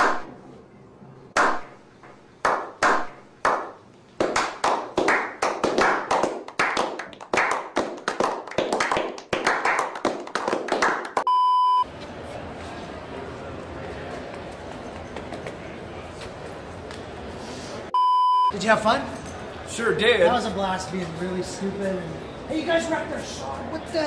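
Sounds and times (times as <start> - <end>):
people clapping: 2.4 - 11.3
short beep tone: 11.3 - 11.9, 18.0 - 18.6.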